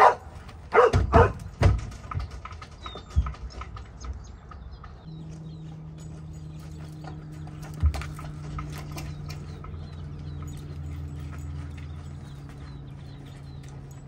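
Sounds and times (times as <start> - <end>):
dog barking: 0.0 - 1.4
hooves on wooden floor: 0.0 - 14.0.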